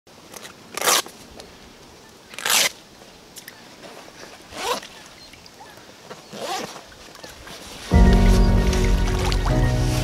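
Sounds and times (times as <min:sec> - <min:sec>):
water sloshing: 0:03.8 - 0:10.0.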